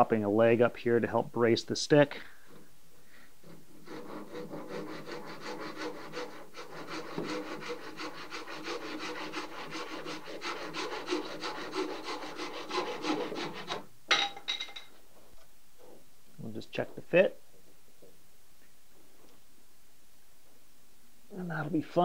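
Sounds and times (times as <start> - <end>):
handsaw cutting wood: 3.4 - 13.9.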